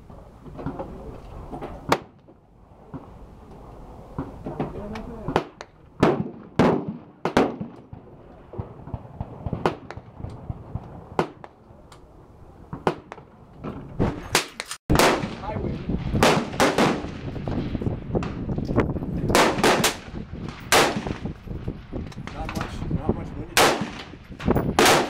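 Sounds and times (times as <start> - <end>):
gunshots: 4.2 - 8.0, 14.0 - 18.4, 19.3 - 21.3, 23.5 - 25.0.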